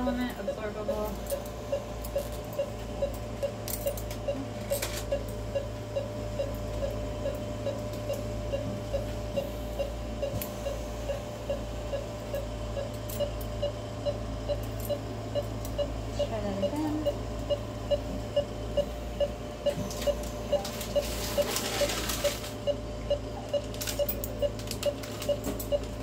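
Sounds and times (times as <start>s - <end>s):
low equipment hum: 0.0s - 26.0s
patient monitor beeping: 0.0s - 26.0s
surgical instruments clicking: 1.2s - 5.3s, 23.5s - 26.0s.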